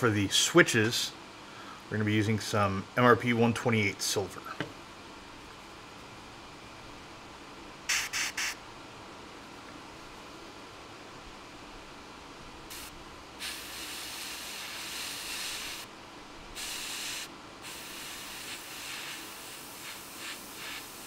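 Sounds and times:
airbrush spraying hiss: 7.9s - 8.6s, 12.7s - 15.9s, 16.6s - 21.0s.

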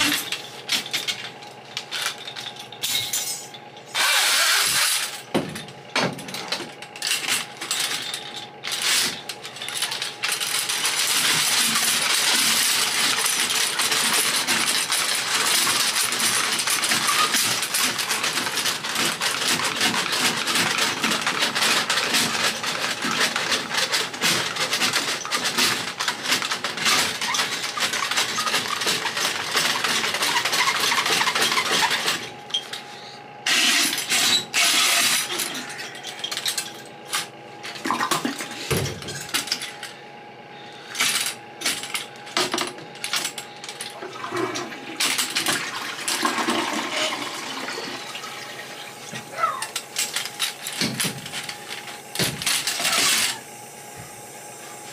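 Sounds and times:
auger cable rattling: 3.6s - 32.8s.

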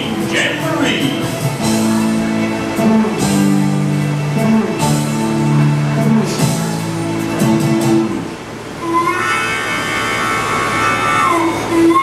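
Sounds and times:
guitar music over loudspeakers: 0.0s - 8.4s.

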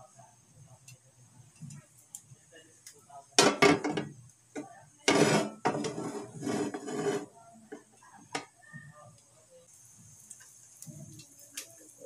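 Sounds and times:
frying pan scraping on stove grate: 5.0s - 7.4s.

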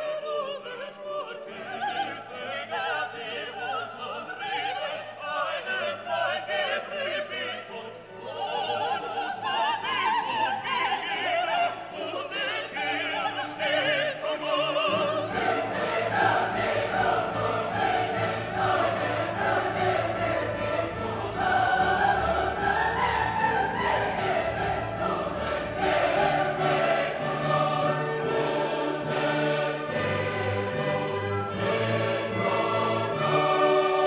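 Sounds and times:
operatic singing: 0.0s - 34.0s
orchestral accompaniment: 12.8s - 34.0s.

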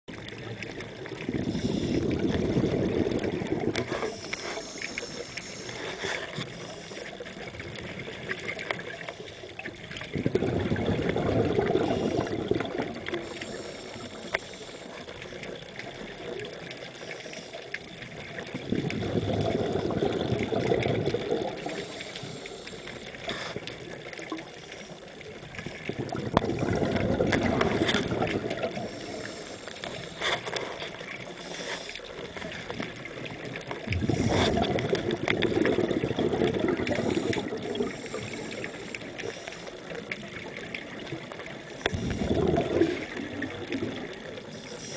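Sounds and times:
exhaled bubbles underwater: 0.1s - 44.9s.

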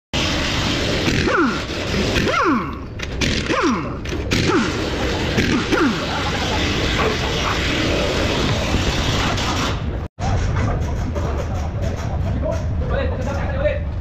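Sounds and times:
air impact wrench bursts: 0.2s - 10.0s.

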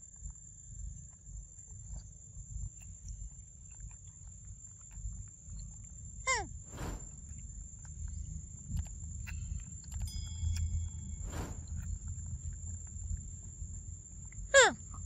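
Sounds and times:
low rumble: 6.6s - 14.5s
steady high whine: 6.6s - 14.6s
brief rustle: 6.7s - 7.4s, 11.0s - 12.0s.

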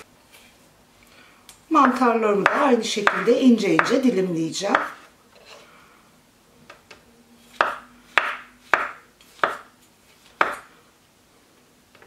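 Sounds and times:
knife cutting on wooden board: 7.5s - 9.7s.

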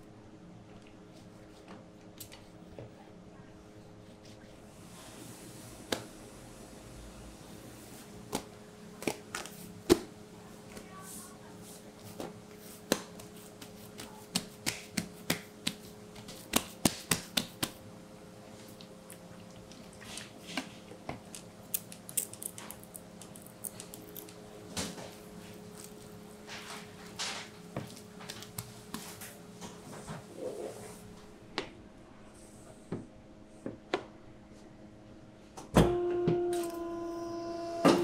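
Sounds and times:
steady low hum: 0.0s - 38.0s
hands slapping bread dough: 8.2s - 10.1s, 12.0s - 17.8s, 23.6s - 29.4s.

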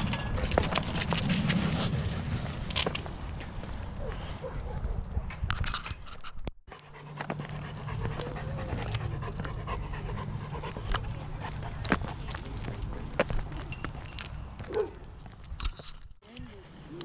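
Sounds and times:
puppy panting: 6.7s - 12.2s.

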